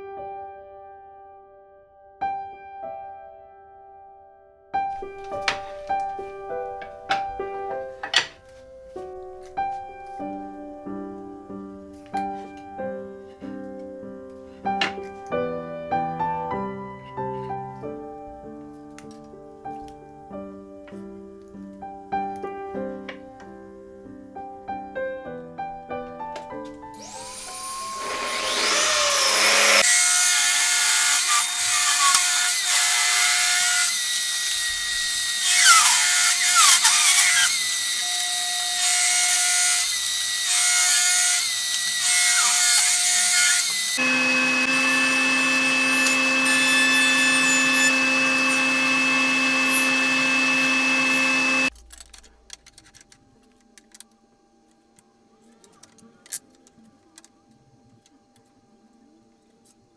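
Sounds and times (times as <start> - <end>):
table saw cutting wood: 27.0 - 51.7
lower-pitched machine hum: 44.0 - 51.7.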